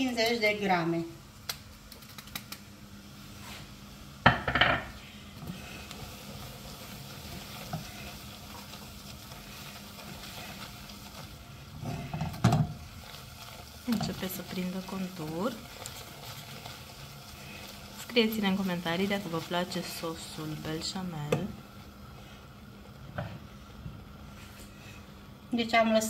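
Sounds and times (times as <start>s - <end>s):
butter sizzling in a saucepan: 0.0s - 26.0s
whisk stirring in a pan: 5.2s - 25.1s.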